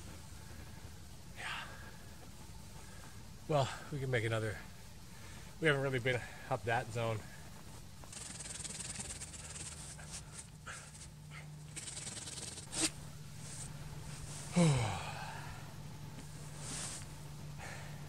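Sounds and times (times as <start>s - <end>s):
man grunting: 14.5s - 15.4s.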